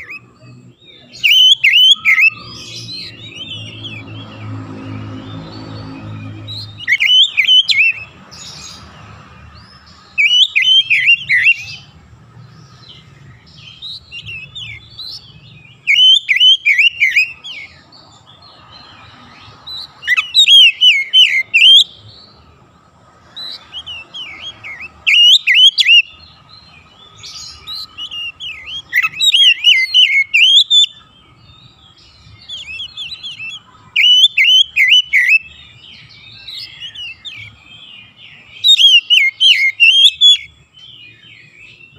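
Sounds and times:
bird singing fast whistles: 1.2 - 4.2, 10.2 - 11.8, 15.8 - 17.7, 20.0 - 21.9, 23.5 - 26.1, 27.2 - 31.0, 32.4 - 35.5, 38.6 - 40.5.

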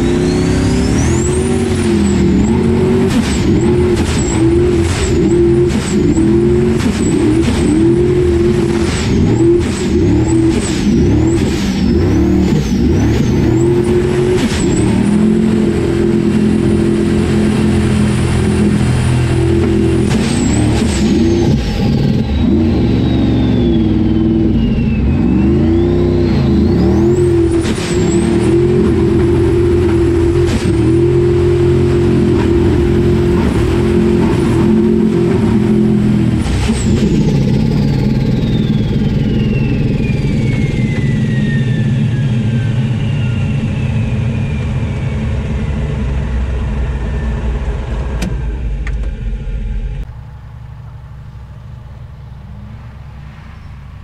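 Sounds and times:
buggy engine revving: 0.0 - 54.0.

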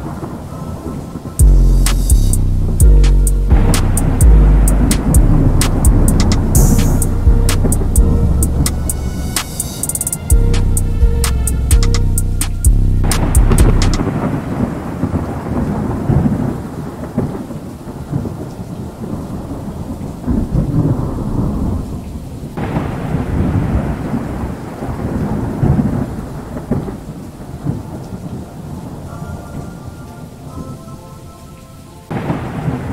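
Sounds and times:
wildfire rumbling and crackling: 3.5 - 9.4, 13.0 - 29.2.

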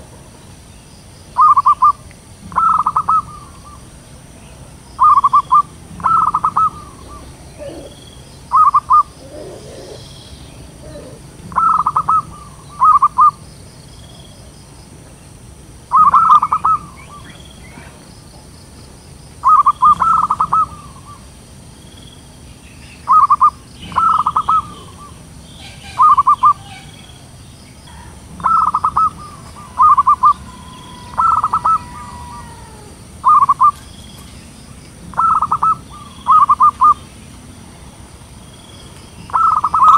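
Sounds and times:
dove cooing: 1.4 - 13.4, 15.9 - 18.0, 19.4 - 21.3, 23.1 - 33.9, 35.0 - 37.0, 39.3 - 39.9.

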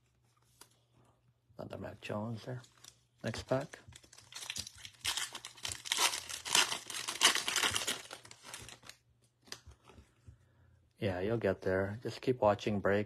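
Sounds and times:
wrapper tearing and crinkling: 2.7 - 9.6.

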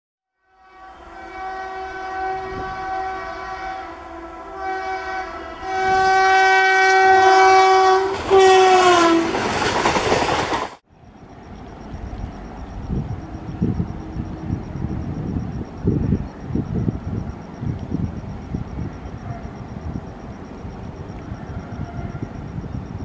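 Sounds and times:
train horn blasts: 0.3 - 9.4, 21.2 - 22.8
train coaches rushing past: 0.9 - 23.0.

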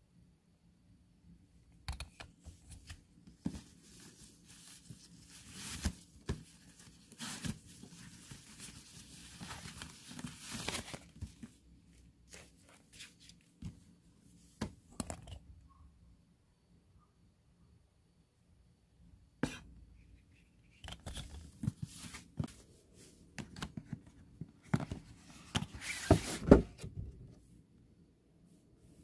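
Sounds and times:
sharp clicks and taps: 1.8 - 2.3.

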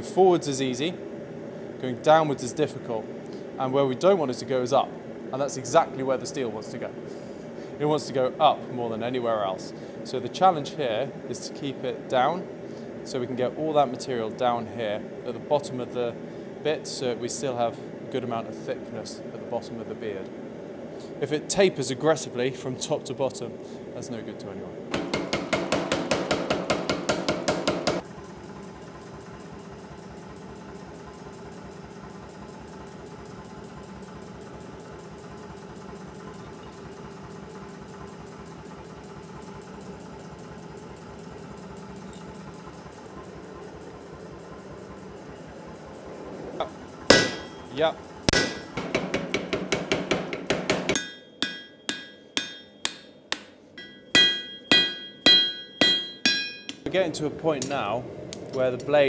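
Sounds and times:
motor humming with faint clatter: 0.0 - 59.0
power hammer striking hot steel: 24.9 - 28.1, 46.6 - 56.9.

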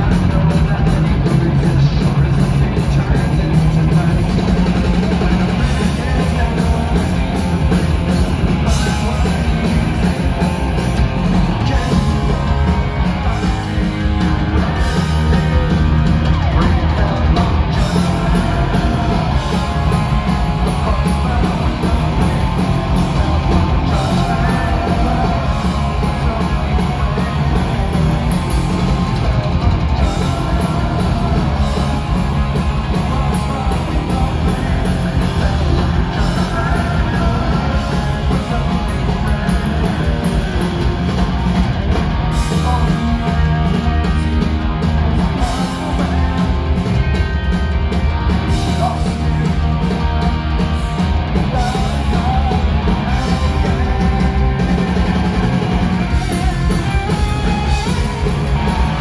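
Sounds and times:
man singing into microphone: 0.0 - 7.4, 8.6 - 10.5, 20.6 - 27.3, 32.9 - 40.4, 51.5 - 54.1
bass guitar: 0.0 - 59.0
drum kit: 0.0 - 59.0
electric guitars: 0.0 - 59.0.

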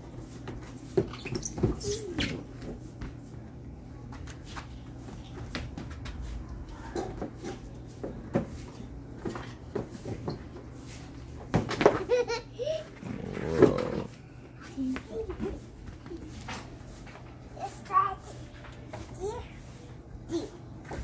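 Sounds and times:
toddler babbling and laughing: 12.2 - 13.3.

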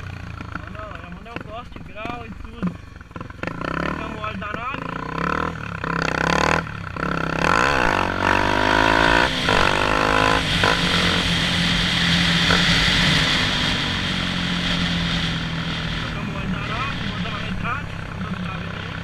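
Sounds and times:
motorcycle engine: 0.0 - 19.0.

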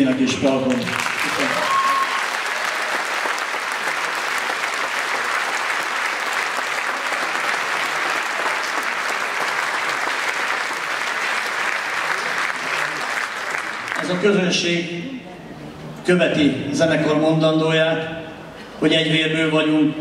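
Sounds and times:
audience applauding: 0.0 - 14.4.

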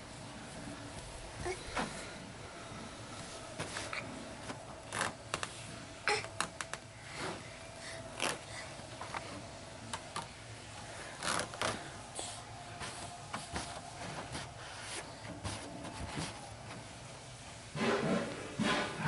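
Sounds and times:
hands patting playpen mesh: 11.2 - 16.9.

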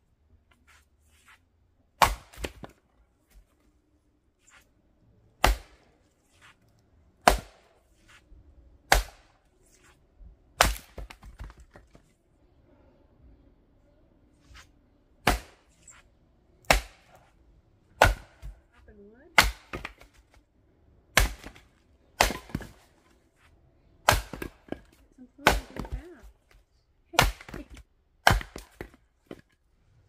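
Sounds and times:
axe chopping firewood: 2.0 - 3.5, 5.4 - 6.6, 7.2 - 8.2, 8.8 - 10.0, 10.6 - 12.0, 15.2 - 16.0, 16.6 - 17.3, 18.0 - 18.8, 19.4 - 20.4, 21.1 - 23.1, 24.0 - 26.6, 27.2 - 29.6.

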